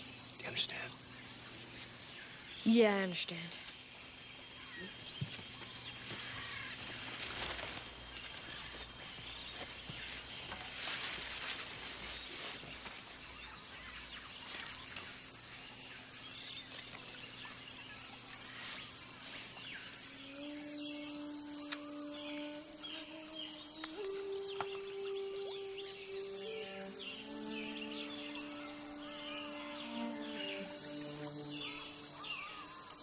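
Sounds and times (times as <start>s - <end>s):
faint bird chirps: 0.0s - 1.6s
insects humming: 0.0s - 33.0s
low held music notes: 20.2s - 32.6s.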